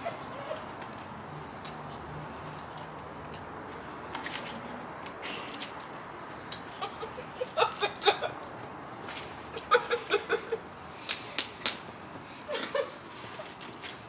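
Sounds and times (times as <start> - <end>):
high-pitched giggling laughter: 6.7 - 8.4, 9.5 - 10.7.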